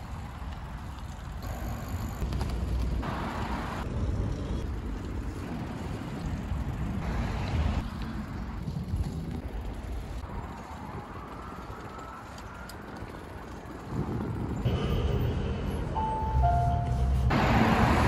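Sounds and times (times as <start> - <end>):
tyre and road rumble: 0.0 - 18.0
wind buffeting microphone: 3.8 - 14.7.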